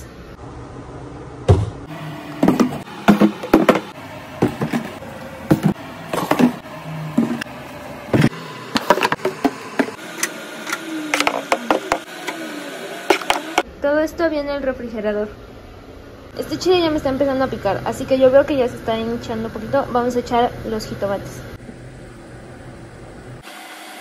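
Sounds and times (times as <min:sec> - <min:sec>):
containers knocking on countertop: 0:02.4 - 0:06.6.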